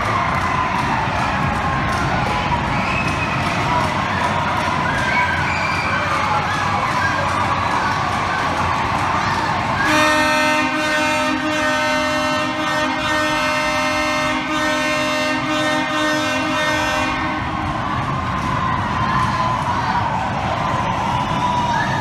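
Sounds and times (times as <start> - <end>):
arena crowd cheering: 0.0 - 22.0
horn sounding long chord: 9.8 - 17.6.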